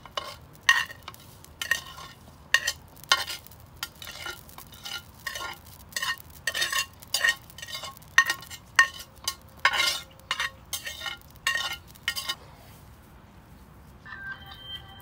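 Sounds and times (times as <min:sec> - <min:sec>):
metal spatula scraping a plate: 0:00.0 - 0:12.4.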